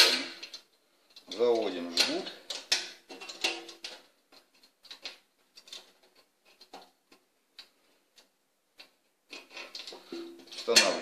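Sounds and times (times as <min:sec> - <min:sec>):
metal hooks ticking on metal frame: 0:09.8 - 0:11.0.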